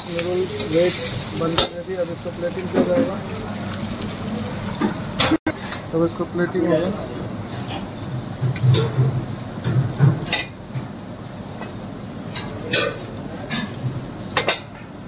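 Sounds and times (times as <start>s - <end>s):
dishes and utensils clinking: 12.4s - 13.8s.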